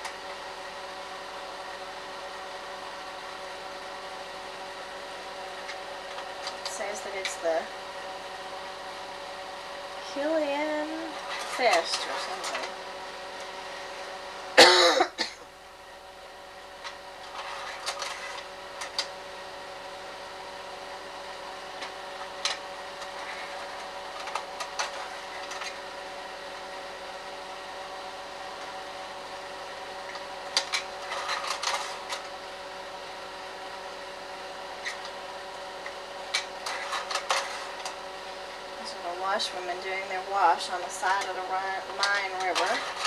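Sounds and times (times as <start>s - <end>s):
slide projector humming: 0.0s - 43.0s.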